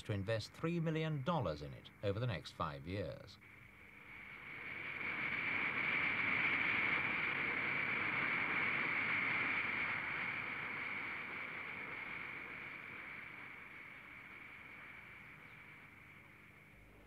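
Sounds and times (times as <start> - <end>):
propeller high whine: 0.0 - 17.0
rushing air: 3.5 - 17.0.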